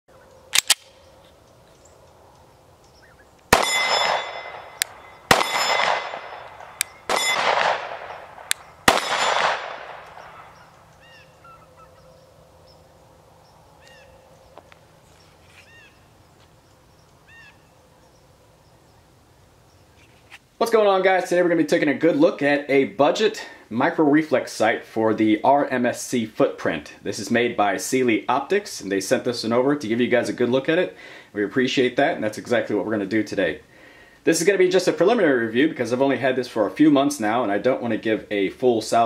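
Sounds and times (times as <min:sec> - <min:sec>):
bird calling: 0:00.1 - 0:07.2, 0:10.0 - 0:20.4
pistol slide racking clicks: 0:00.5 - 0:01.0
pistol shots with echo: 0:03.5 - 0:10.7.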